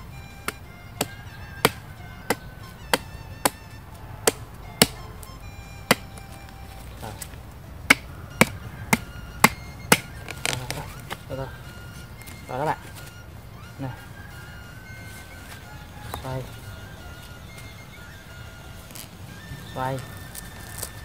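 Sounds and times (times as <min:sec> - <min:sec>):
machete hacking coconut: 0:00.3 - 0:11.3.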